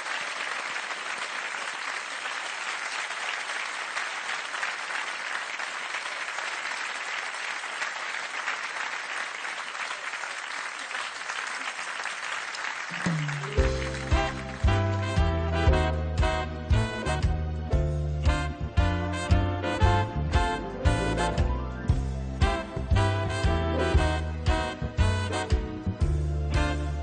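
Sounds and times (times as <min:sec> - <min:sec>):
audience applauding: 0:00.0 - 0:15.7.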